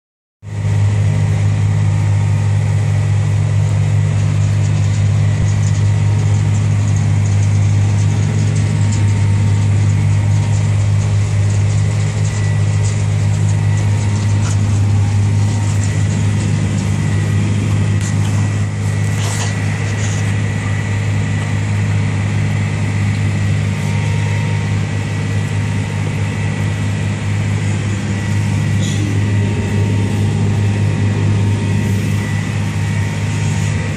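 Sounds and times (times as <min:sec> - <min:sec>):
tractor engine drone: 0:00.4 - 0:33.9
faint high whine: 0:08.8 - 0:33.9.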